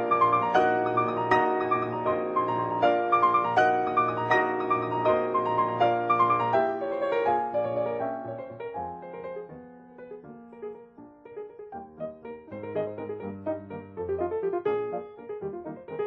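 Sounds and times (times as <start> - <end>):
classical piano chords: 0.0 - 16.0.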